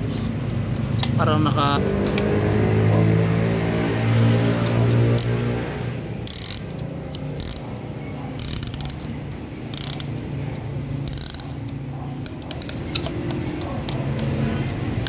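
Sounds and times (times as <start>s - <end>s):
ratchet clicking: 6.2s - 7.8s, 8.4s - 9.1s, 9.7s - 10.2s, 11.0s - 13.2s.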